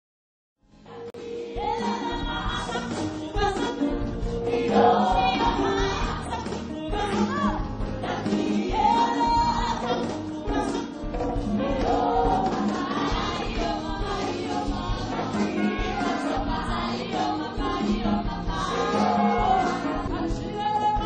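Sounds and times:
choir singing with music: 0.7s - 21.0s.

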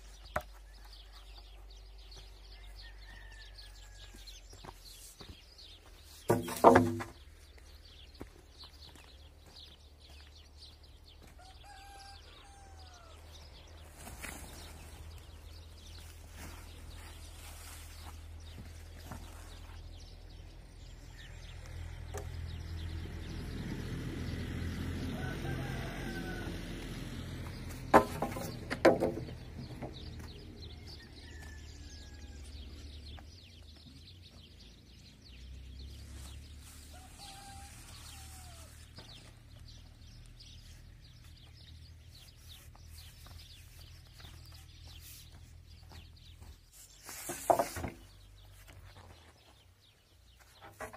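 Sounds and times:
distant rooster crowing: 0.6s - 4.7s, 11.1s - 13.8s, 24.7s - 28.6s, 30.5s - 33.1s, 36.7s - 39.3s.

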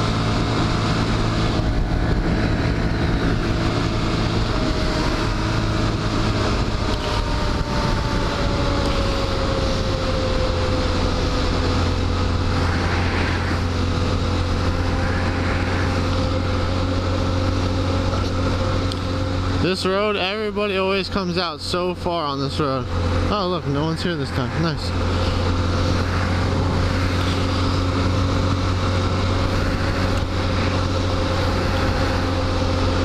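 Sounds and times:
wind rushing past microphone: 0.0s - 18.8s, 24.1s - 33.0s
motorcycle engine running: 0.0s - 33.0s.

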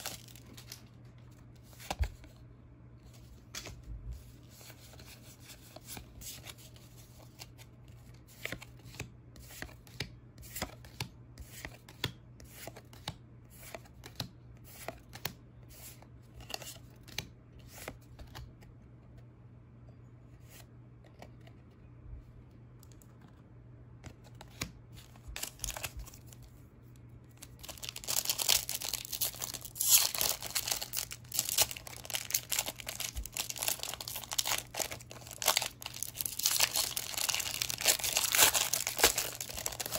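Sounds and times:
foil wrapper tearing and crinkling: 0.0s - 0.7s, 27.5s - 39.9s.

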